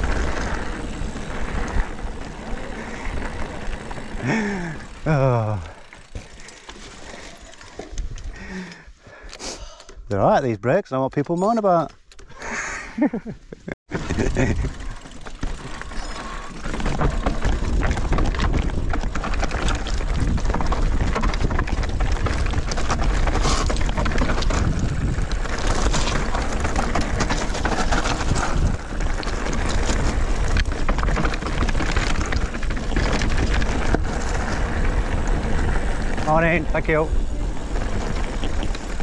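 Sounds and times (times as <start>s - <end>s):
tyres crunching over gravel: 0.0s - 8.5s, 14.0s - 39.0s
bike rattling and clicking: 0.0s - 9.0s, 13.9s - 39.0s
wind buffeting microphone: 16.8s - 39.0s.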